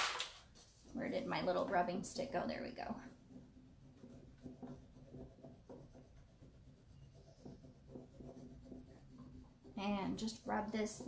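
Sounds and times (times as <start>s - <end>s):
stick scratching on wood: 3.0s - 11.0s.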